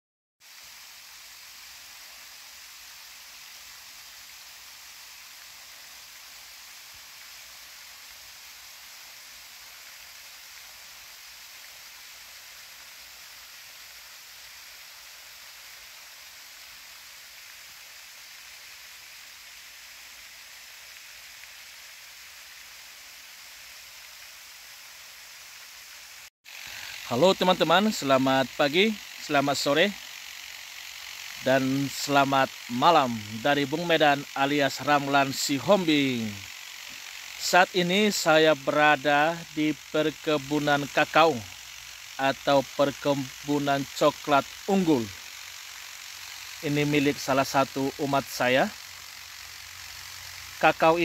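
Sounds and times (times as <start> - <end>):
faint steady hiss: 0.4 - 51.0.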